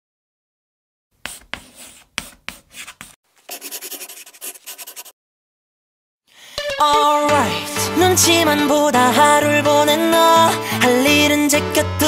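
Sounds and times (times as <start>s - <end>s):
chalk tapping on a board: 1.2s - 5.1s
chalk scribbling on a board: 1.2s - 5.2s.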